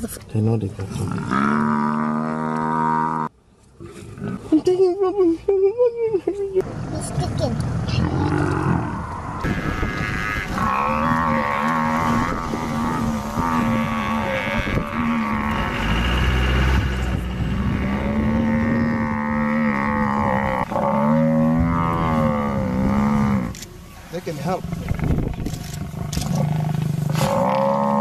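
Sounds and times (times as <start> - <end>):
buffalo bellowing: 8.0 - 23.6, 24.6 - 28.0
vehicle engine running low: 12.4 - 20.0.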